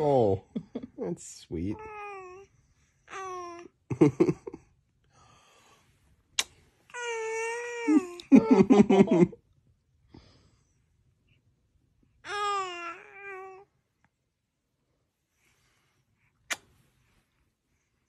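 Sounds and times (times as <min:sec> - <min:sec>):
baby cooing: 0:01.8 - 0:02.5, 0:03.1 - 0:03.7, 0:12.3 - 0:13.7.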